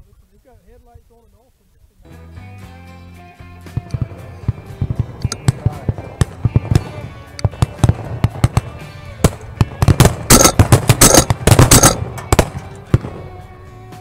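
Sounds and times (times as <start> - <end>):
music: 2.0 - 14.0
shotguns firing: 3.8 - 13.4.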